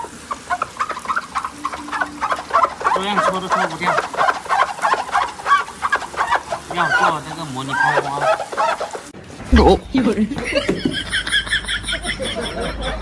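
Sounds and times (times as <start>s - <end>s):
chicken clucking: 0.0s - 9.1s.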